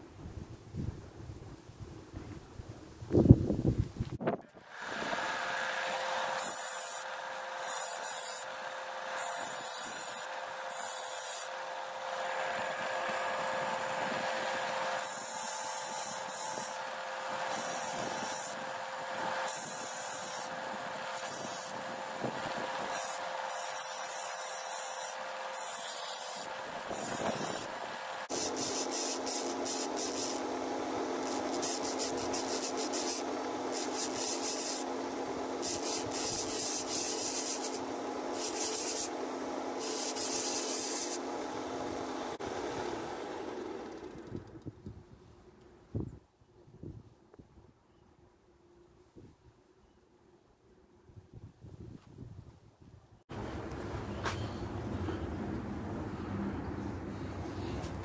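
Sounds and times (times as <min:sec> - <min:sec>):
belt sander motor hum: 0:04.6 - 0:44.8
sanding belt rasping: 0:04.8 - 0:11.7, 0:13.0 - 0:30.5, 0:31.2 - 0:35.0, 0:35.6 - 0:39.2, 0:39.8 - 0:41.2.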